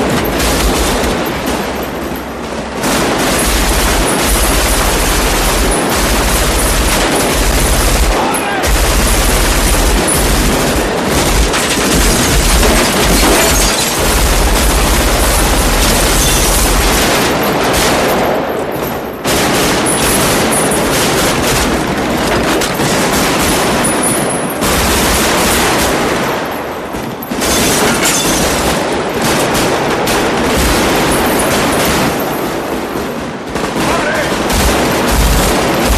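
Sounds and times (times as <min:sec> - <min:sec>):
automatic rifle fire: 0:00.0 - 0:35.9.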